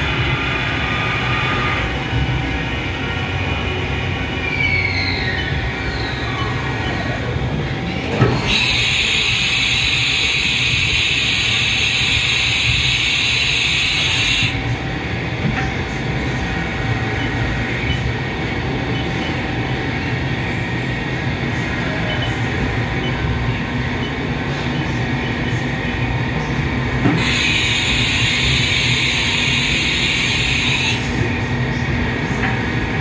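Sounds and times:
machining center low hum: 0.0 - 33.0
loud steady hiss: 8.5 - 14.7, 27.1 - 31.2.

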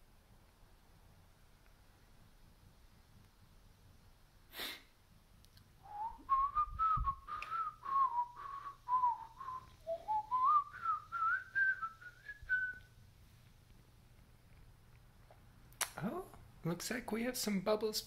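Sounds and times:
person whistling a tune: 5.9 - 12.9.

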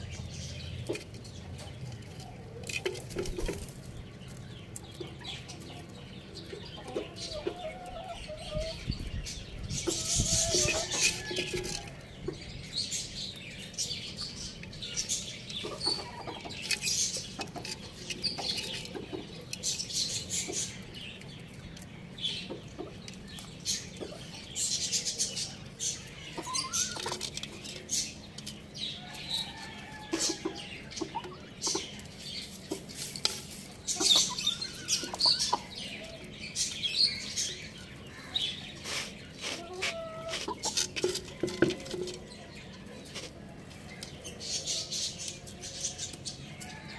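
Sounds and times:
chickens clucking: 0.0 - 46.9
pecking and scratching: 0.1 - 46.9.

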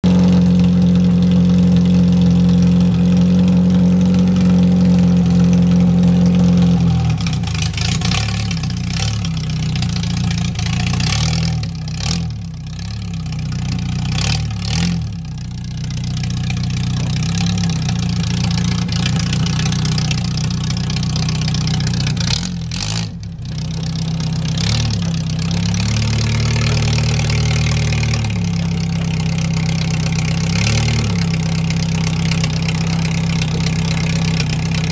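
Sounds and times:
car engine running: 0.0 - 34.9.

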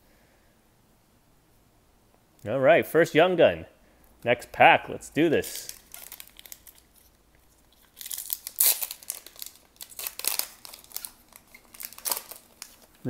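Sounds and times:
foil wrapper tearing and crinkling: 5.4 - 13.0.

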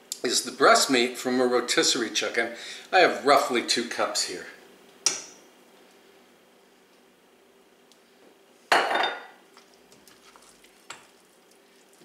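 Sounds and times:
glass bowl knocking: 8.7 - 9.3.

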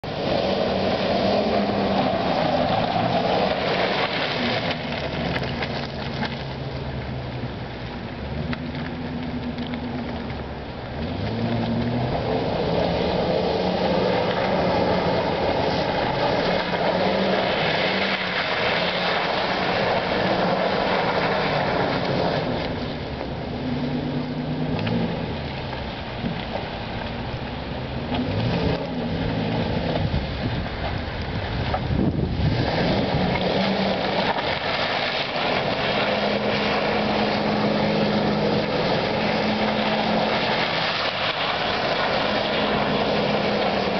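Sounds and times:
truck engine revving: 11.0 - 22.8, 32.0 - 43.9.

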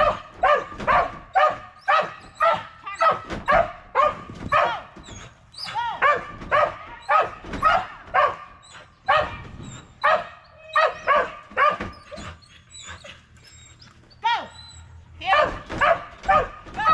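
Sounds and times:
dog barking: 0.0 - 4.9, 6.0 - 9.4, 10.0 - 11.9, 15.3 - 16.6.

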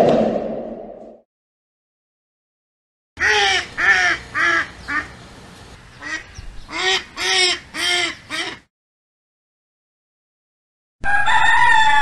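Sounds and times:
duck quacking: 3.2 - 5.2, 6.0 - 8.7.

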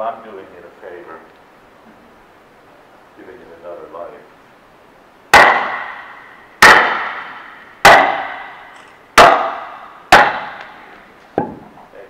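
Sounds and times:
wooden club striking metal froe: 5.3 - 11.7.

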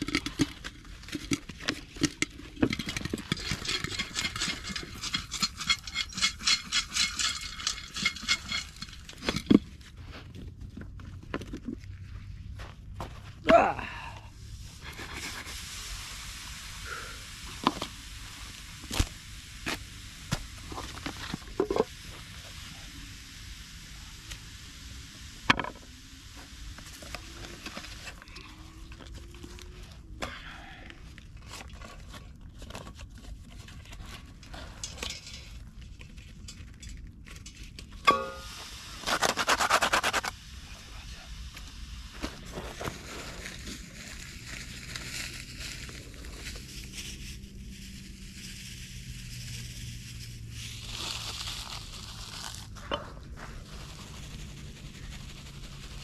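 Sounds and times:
rattling scrape: 0.0 - 9.9, 33.7 - 40.3
steady outdoor hiss: 0.0 - 56.0
ringing metal clank: 38.0 - 38.6
pot and utensil clinking: 38.1 - 38.5.

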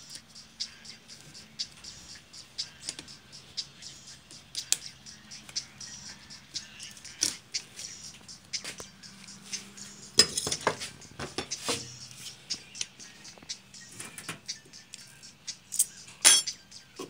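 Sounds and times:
metal tools clinking: 10.2 - 10.8, 15.7 - 16.6.

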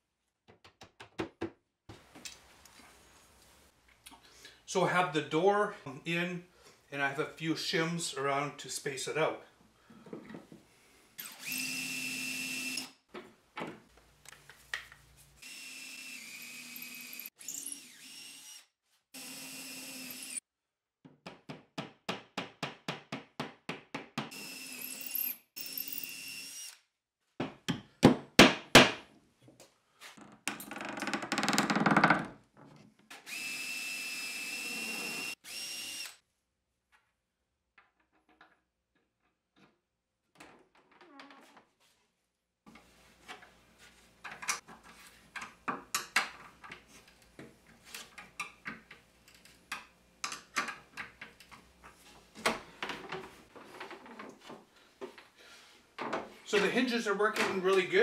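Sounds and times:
cordless drill motor whine: 11.3 - 12.9, 15.4 - 18.6, 33.3 - 36.2.

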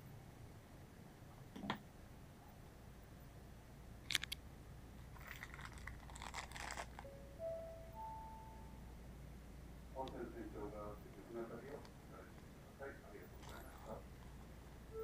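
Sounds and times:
steady low hum: 0.0 - 15.0
plastic bag crinkling: 5.2 - 7.1.

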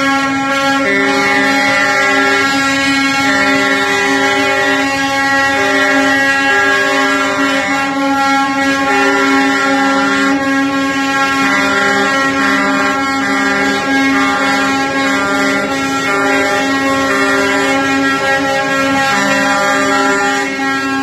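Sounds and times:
truck air horns blowing: 0.0 - 21.0.

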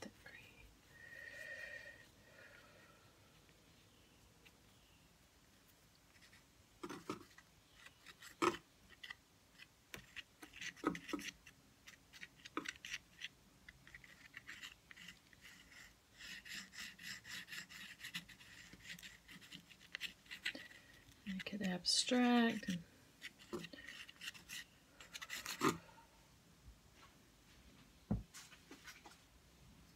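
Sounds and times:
palette knife scraping paper: 6.1 - 25.9.

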